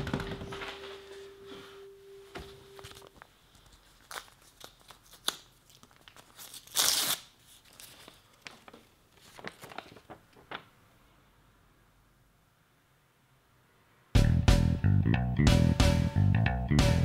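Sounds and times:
paper envelope crinkling: 2.8 - 10.8
envelope ripping: 3.9 - 8.3.

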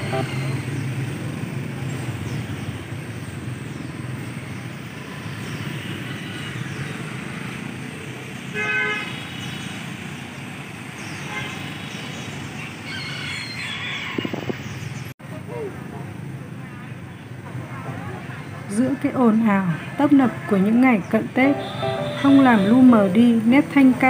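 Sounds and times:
vehicle horn toot: 0.0 - 0.5, 8.6 - 9.1, 21.5 - 23.2
street traffic: 0.0 - 24.0.

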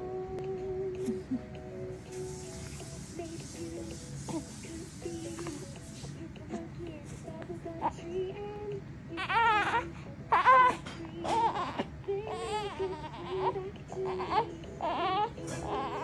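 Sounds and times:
newborn baby crying: 9.1 - 16.0.

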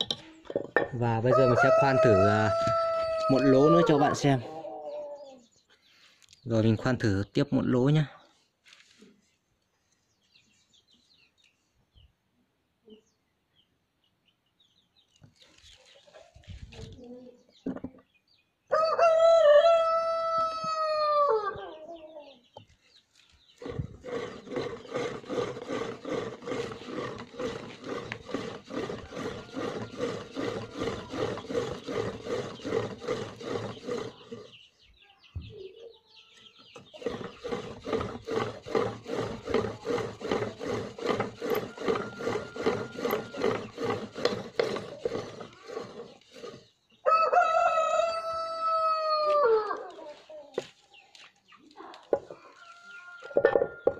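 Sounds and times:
rooster crowing: 1.3 - 4.4, 18.7 - 21.6, 41.4 - 43.7, 47.0 - 49.9
pump drill strokes into iron: 23.6 - 34.5, 37.0 - 46.6.

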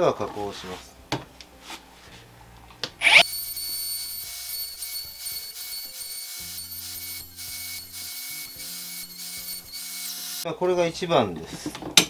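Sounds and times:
router cutting wood: 3.0 - 3.3, 4.3 - 10.4
router motor whine: 3.0 - 3.3, 4.0 - 10.4.

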